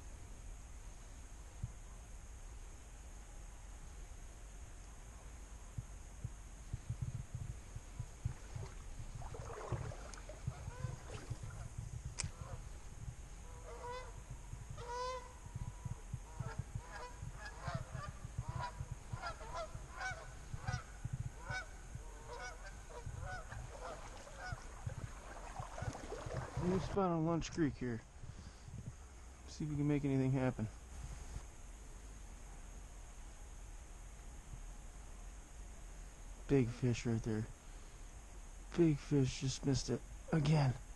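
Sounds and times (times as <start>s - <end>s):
low rumble: 5.6s - 27.1s
geese honking: 13.5s - 14.2s, 14.8s - 15.3s, 16.3s - 26.9s.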